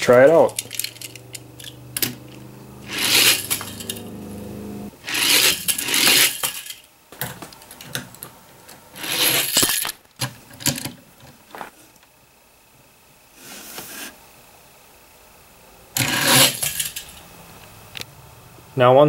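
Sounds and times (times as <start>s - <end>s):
toy car rattling down plastic track: 0.3s - 2.2s, 2.9s - 4.0s, 5.0s - 6.9s, 9.0s - 10.0s, 16.0s - 17.2s.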